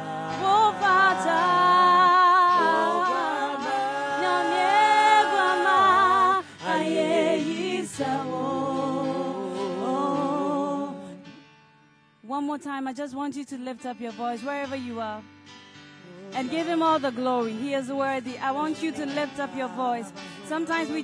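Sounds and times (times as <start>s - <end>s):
voices singing a cappella: 0.0s - 11.4s, 16.0s - 21.0s.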